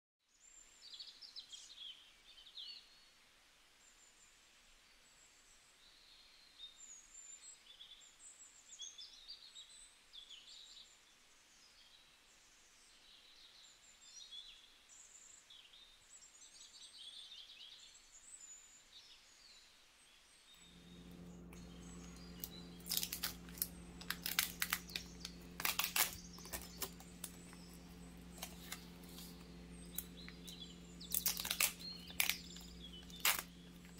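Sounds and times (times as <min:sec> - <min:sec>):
small birds chirping: 0:11.6 - 0:33.9
steady low hum: 0:20.6 - 0:33.9
plastic film crinkling: 0:20.7 - 0:33.9.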